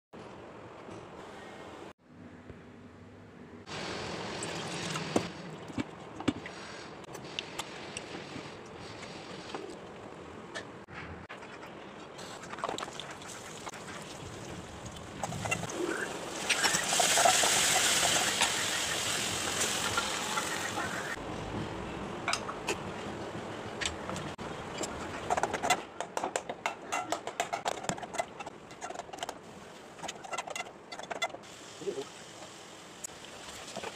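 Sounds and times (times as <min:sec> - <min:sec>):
food sizzling in hot oil: 0:15.9 - 0:21.1.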